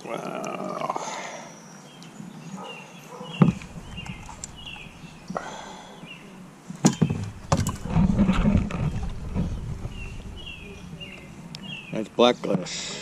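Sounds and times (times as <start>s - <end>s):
birds chirping: 0.0s - 13.0s
knocks and rubbing from handling: 3.4s - 5.1s, 6.8s - 10.7s
glass bottle thumping on kayak hull: 6.8s - 8.0s.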